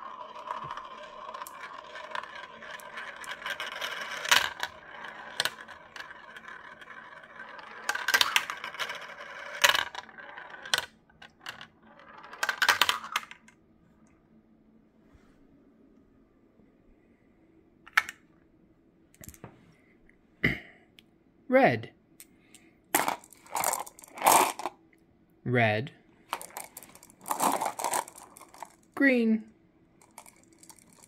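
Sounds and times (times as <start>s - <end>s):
marbles clacking on plastic: 0.0s - 13.5s, 22.9s - 24.8s, 26.3s - 29.0s, 30.0s - 31.0s
marbles rolling whir: 0.0s - 13.5s, 23.0s - 24.8s, 26.3s - 29.0s, 30.0s - 31.0s.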